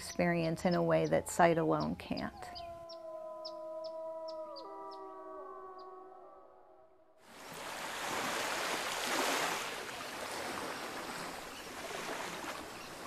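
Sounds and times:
waves washing in: 7.2s - 13.0s.

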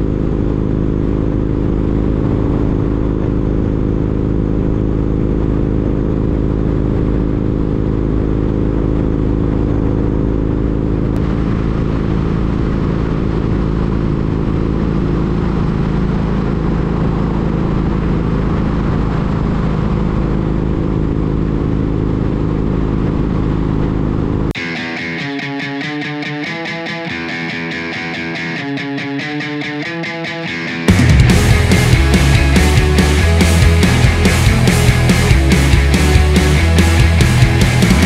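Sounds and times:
motorcycle engine cruising: 0.0s - 38.0s
road noise: 0.0s - 38.0s
wind noise: 11.2s - 21.0s.

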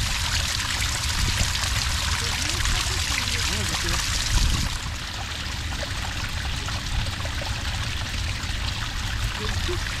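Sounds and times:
water pouring onto sand: 0.0s - 4.8s.

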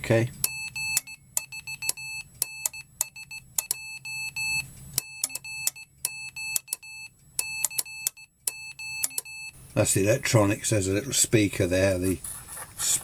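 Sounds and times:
morse code beeps: 0.4s - 9.6s.

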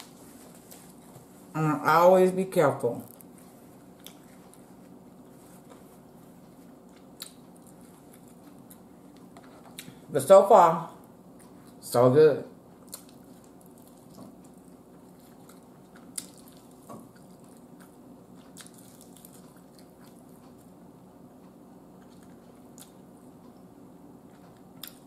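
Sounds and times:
low room hum: 0.0s - 25.0s
person biting and chewing: 3.1s - 10.0s, 12.8s - 20.7s, 24.3s - 25.0s.

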